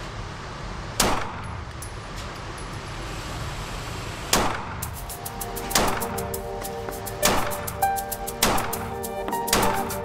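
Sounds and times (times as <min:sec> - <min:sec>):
background music: 0:04.8 - 0:10.0.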